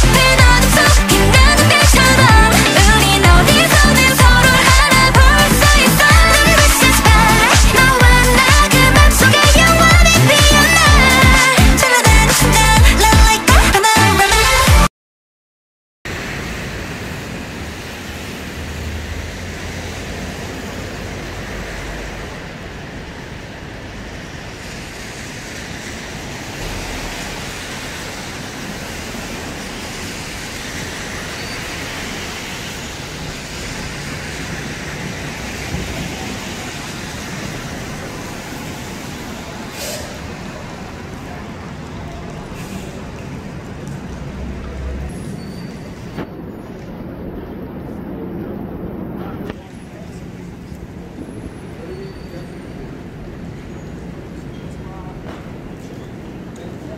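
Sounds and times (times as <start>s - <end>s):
city street traffic: 0.0s - 14.9s, 16.1s - 56.9s
short hiss: 39.7s - 40.2s.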